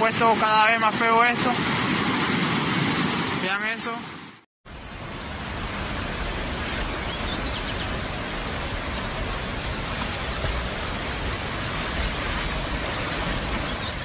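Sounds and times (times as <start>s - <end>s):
flooded river rushing: 4.7s - 14.0s.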